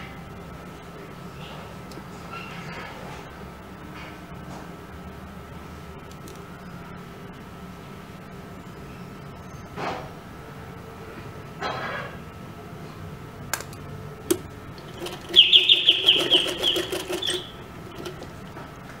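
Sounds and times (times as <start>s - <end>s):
sewing machine stitching: 14.3s - 18.5s.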